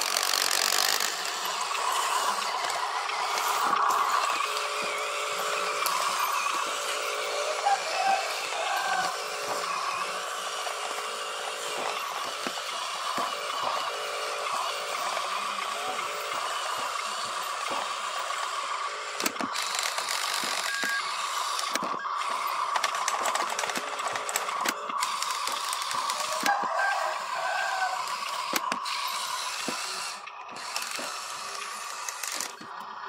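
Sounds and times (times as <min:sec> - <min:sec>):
small electric motors whirring: 0:00.0 - 0:33.0
clicks and rattles: 0:19.2 - 0:26.7.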